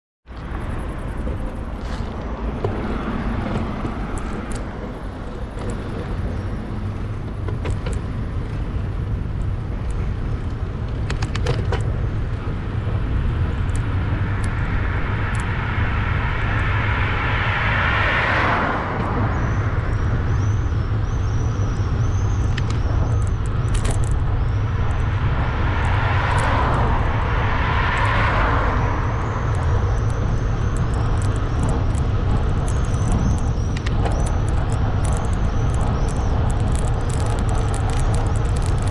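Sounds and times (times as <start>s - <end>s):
bicycle road noise: 0.2s - 38.9s
low wind rumble: 0.2s - 38.9s
car passing: 0.4s - 38.9s.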